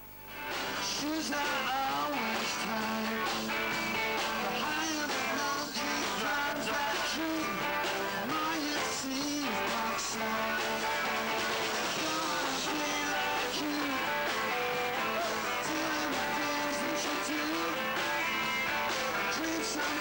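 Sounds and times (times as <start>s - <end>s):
rock band with electric guitars: 0.0s - 20.0s
man singing: 0.7s - 3.5s, 4.1s - 20.0s.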